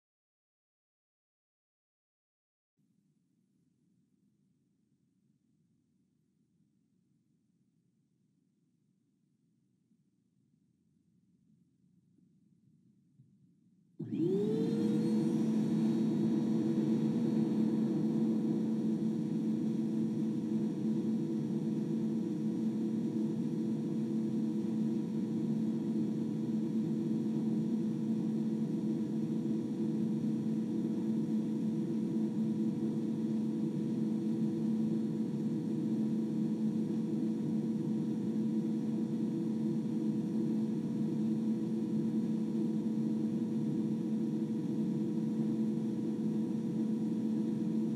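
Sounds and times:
vacuum cleaner motor whine: 14.0 - 36.5.

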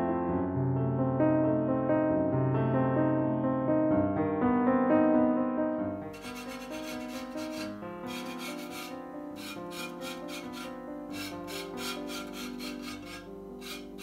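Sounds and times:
dry rasping scrape on plaster: 6.1 - 14.0.

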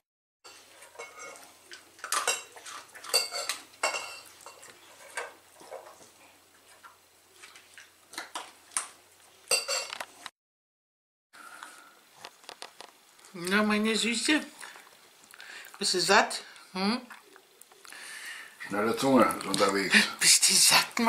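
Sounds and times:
metal dog bowl clinking: 0.9 - 5.2, 9.5 - 9.9.

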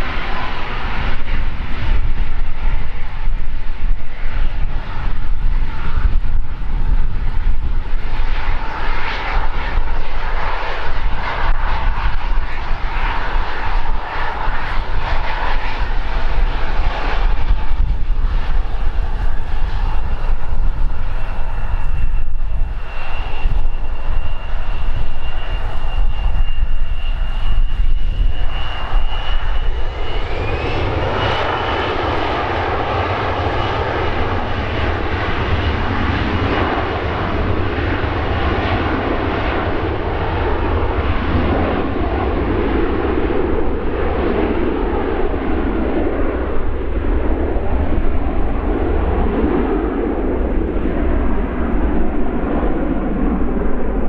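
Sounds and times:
jet engines whining: 0.0 - 54.0.

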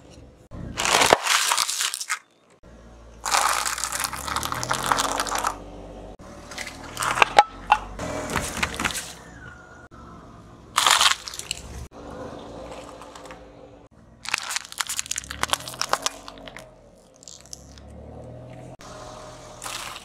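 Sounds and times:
plastic crackling and popping: 0.8 - 2.3, 3.3 - 5.6, 14.2 - 17.8
plastic packaging crunching: 0.8 - 2.3, 3.2 - 5.6, 10.8 - 11.7, 14.2 - 17.8, 19.6 - 20.0.

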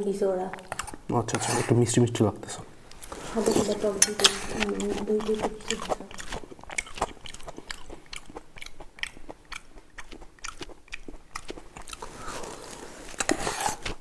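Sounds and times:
wet mouth clicks: 0.5 - 1.1, 2.9 - 12.3
person chewing: 0.5 - 1.8, 2.9 - 14.0
slurp from spoon: 11.4 - 14.0.

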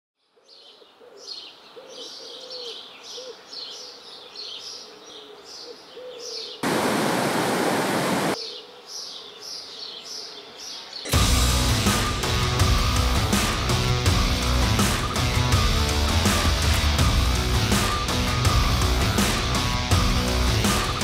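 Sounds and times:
birds chirping: 0.3 - 21.0
loud rushing noise: 6.6 - 8.4.

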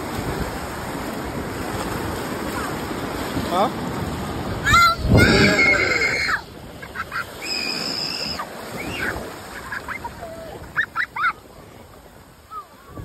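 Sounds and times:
shallow surf washing: 0.0 - 13.0
high-pitched cries and squeals: 4.7 - 6.5.

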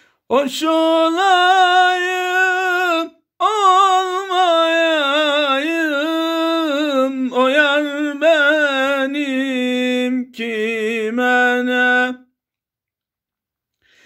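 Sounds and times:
man singing unaccompanied: 0.2 - 12.4.

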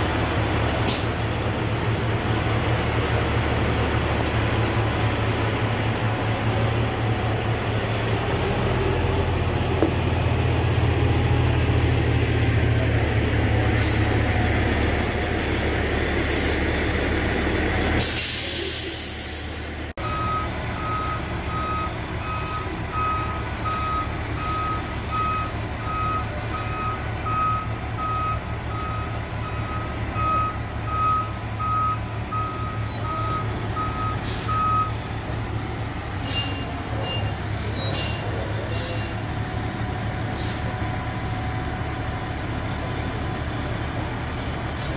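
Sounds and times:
diesel engine running: 0.0 - 44.9
air brake hiss: 0.9 - 1.3, 16.2 - 16.6, 18.0 - 19.9, 34.2 - 34.6, 36.2 - 39.2, 40.3 - 40.7
reversing alarm beeping: 20.0 - 35.0.

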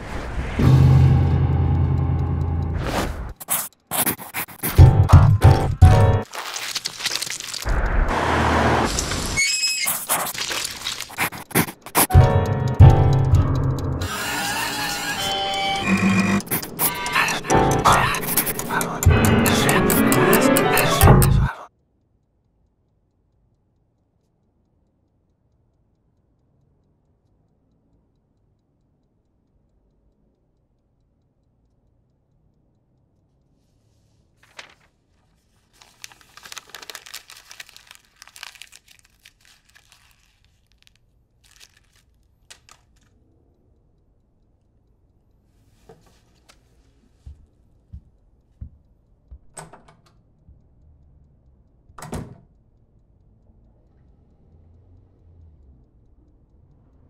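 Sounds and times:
paper tearing and crumpling: 3.3 - 4.8, 5.9 - 7.8, 8.8 - 12.1, 34.4 - 43.1.

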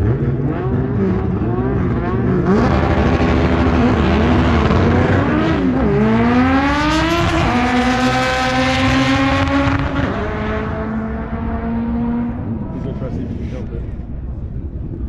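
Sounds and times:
drag race cars accelerating: 0.0 - 13.5.

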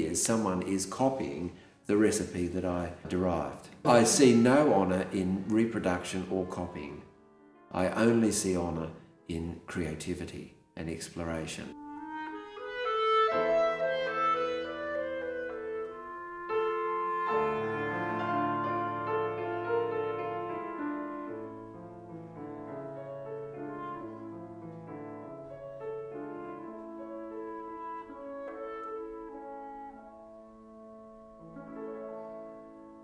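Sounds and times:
piano chords: 0.0 - 33.0
clarinet long notes: 3.9 - 4.8, 11.7 - 33.0.

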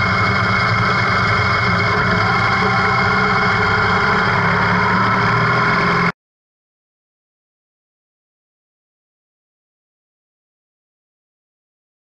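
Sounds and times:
motorcycle engine running: 0.0 - 6.1.

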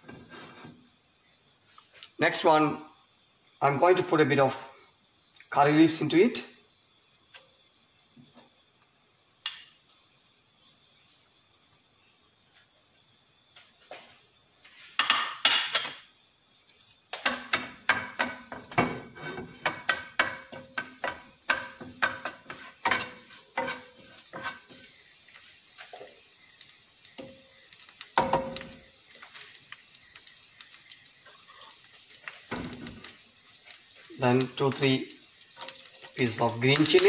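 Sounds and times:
leaves frying in hot oil: 0.0 - 37.0
wooden spatula knocking on pan: 17.2 - 24.5, 28.2 - 28.7.

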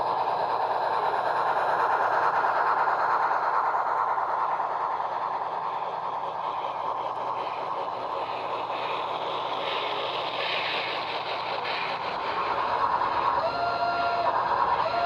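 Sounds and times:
model train wheels clattering: 0.0 - 15.0
steam locomotive sounds: 0.0 - 15.0.

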